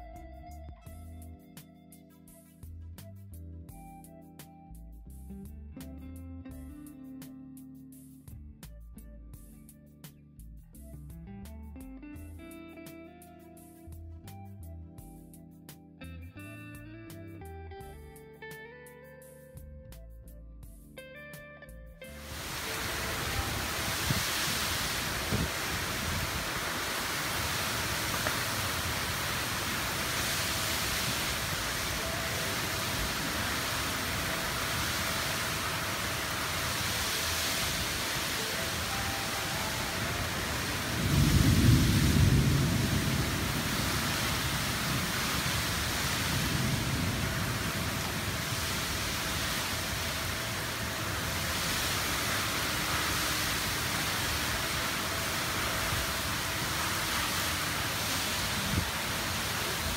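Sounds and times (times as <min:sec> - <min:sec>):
heavy rain hissing: 0:22.1 - 0:59.9
thunder rumbling: 0:22.3 - 0:59.9.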